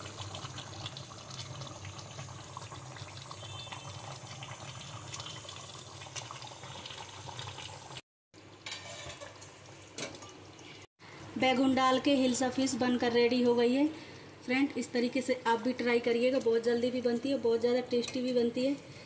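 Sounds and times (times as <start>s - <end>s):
curry bubbling in a pan: 0.0s - 9.6s.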